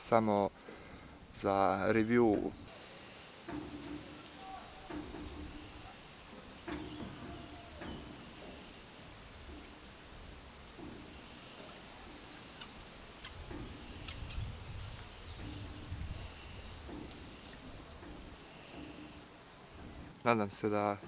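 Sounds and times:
wind rumble on microphone: 0:12.8 - 0:18.4.

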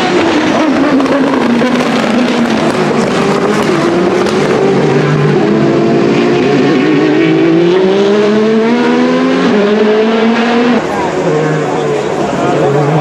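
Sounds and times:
race car engine accelerating: 0:00.0 - 0:13.0.

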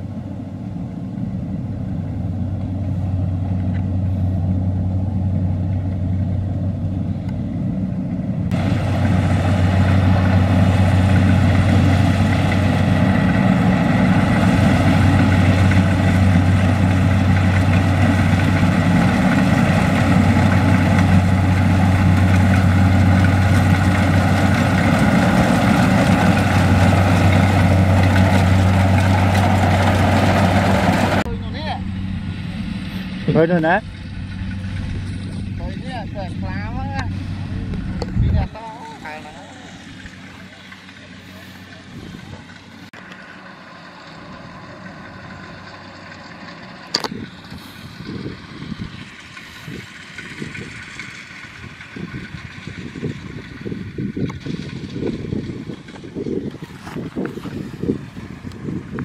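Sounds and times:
combine harvester engine hum: 0:00.0 - 0:59.0
machinery clatter: 0:08.5 - 0:32.0, 0:43.9 - 0:59.0.

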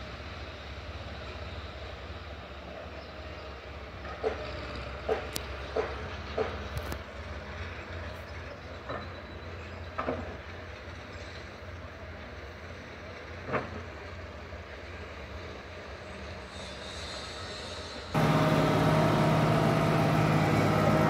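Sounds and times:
construction machinery engine rumble: 0:18.2 - 0:21.0.

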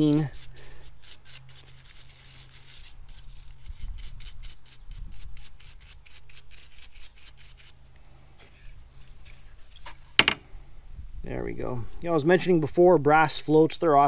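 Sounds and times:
brush scrubbing metal: 0:00.0 - 0:07.8.

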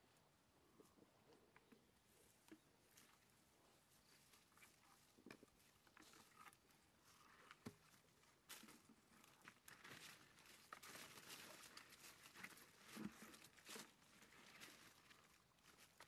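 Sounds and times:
dry leaves rustling and crackling: 0:08.5 - 0:16.0.

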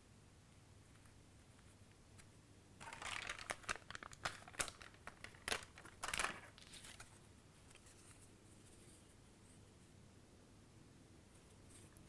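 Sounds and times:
cardstock being handled: 0:02.8 - 0:08.3
plastic liner crinkling: 0:02.8 - 0:08.3.

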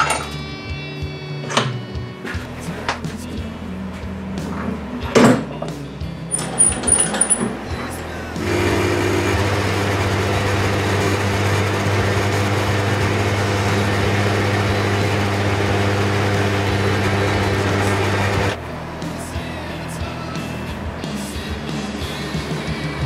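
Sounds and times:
metal lathe running: 0:06.3 - 0:07.7, 0:08.3 - 0:18.6.

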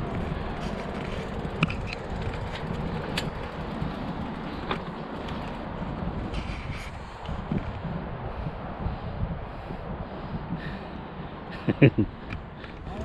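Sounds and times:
bicycle tyres rumbling on metal mesh: 0:00.0 - 0:08.0.

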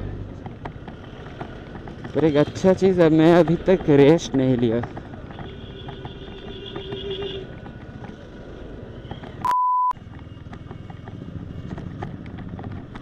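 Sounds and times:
motorcycle engine: 0:00.0 - 0:09.4, 0:10.0 - 0:13.0
wind: 0:00.0 - 0:13.0
small rattles and knocks: 0:03.4 - 0:08.2, 0:10.0 - 0:13.0
censor bleep: 0:09.4 - 0:10.0.

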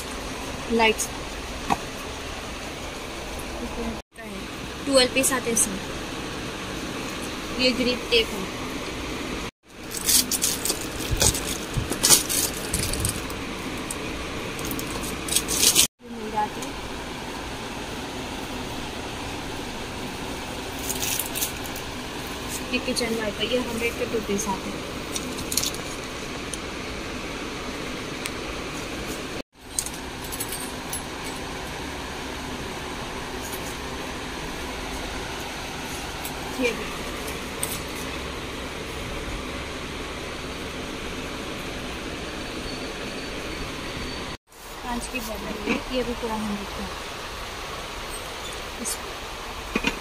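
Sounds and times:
fan-like room noise: 0:00.0 - 0:50.0
steady background hum: 0:00.0 - 0:50.0
plastic packaging rustling and clicking: 0:09.8 - 0:13.3.

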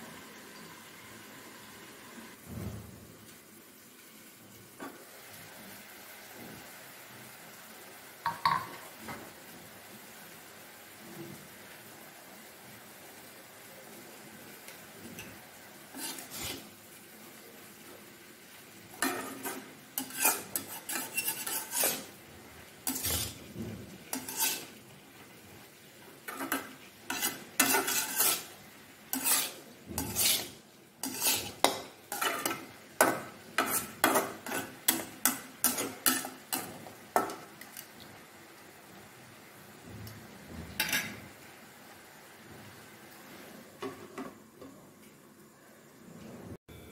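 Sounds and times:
spatula scraping a metal wok: 0:15.2 - 0:16.8, 0:18.9 - 0:24.9, 0:26.2 - 0:37.9.

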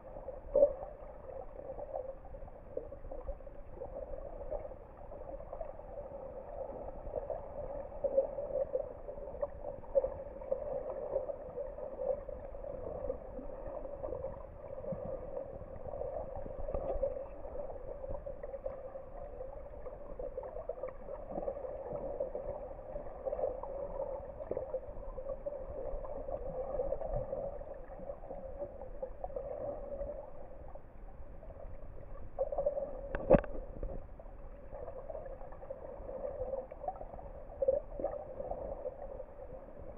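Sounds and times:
small crackles and knocks: 0:32.4 - 0:34.2.

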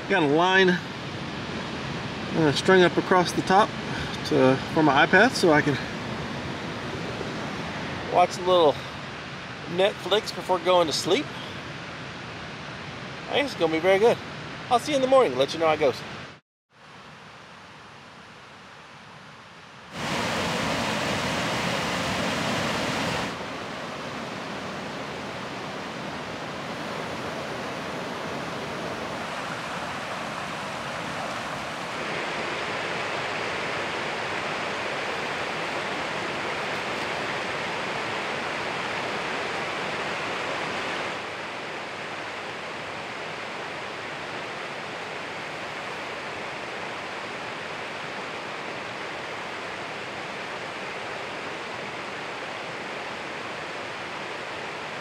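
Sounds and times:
waterfall rushing: 0:19.9 - 0:55.0.

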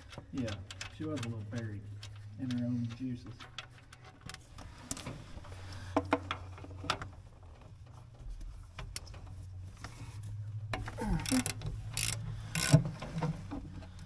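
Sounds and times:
wrench clicking on bolts: 0:11.2 - 0:12.8.

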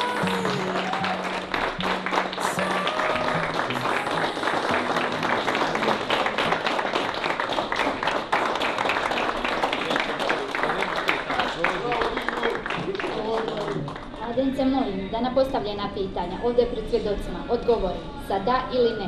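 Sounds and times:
music playing: 0:00.0 - 0:06.6
people applauding: 0:00.0 - 0:14.8.

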